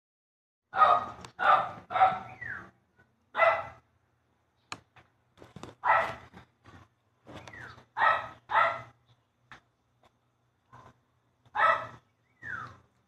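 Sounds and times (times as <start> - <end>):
dog barking: 0.7 - 2.4, 3.4 - 3.8, 5.8 - 6.3, 8.0 - 9.0, 11.5 - 12.0.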